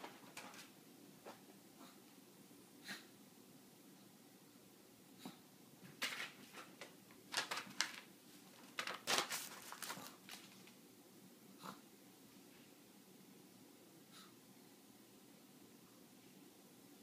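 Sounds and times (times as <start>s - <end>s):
paper envelope rustling on floor: 0.0s - 0.8s, 6.0s - 10.8s.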